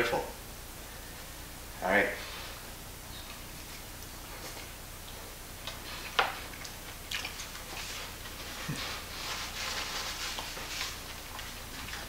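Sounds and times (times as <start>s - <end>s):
paper napkin rustling: 7.3s - 12.0s.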